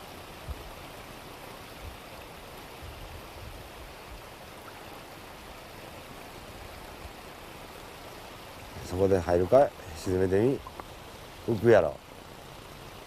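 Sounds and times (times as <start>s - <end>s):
river flowing over stones: 0.0s - 13.0s.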